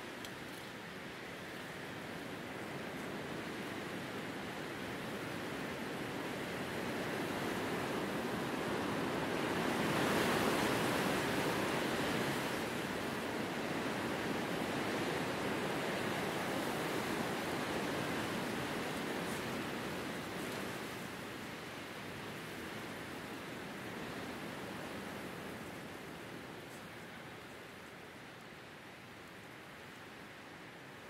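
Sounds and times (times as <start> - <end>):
wind blowing through grass: 0.0 - 31.0.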